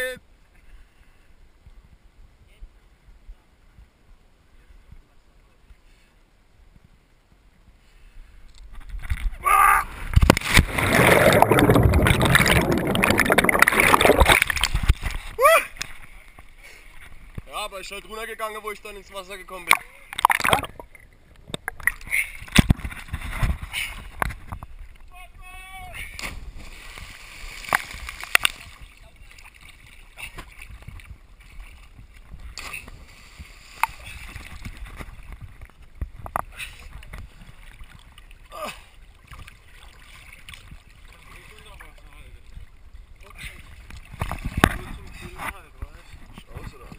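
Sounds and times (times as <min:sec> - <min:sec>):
water sloshing and lapping: 0:08.8 - 0:17.5, 0:26.0 - 0:46.9
air noise while falling: 0:09.3 - 0:15.8
person crying out: 0:09.4 - 0:09.9, 0:15.4 - 0:15.8
underwater bubbling and churning: 0:09.9 - 0:17.4, 0:20.0 - 0:25.1
splash into water: 0:10.0 - 0:15.7, 0:26.0 - 0:30.7, 0:32.5 - 0:35.0.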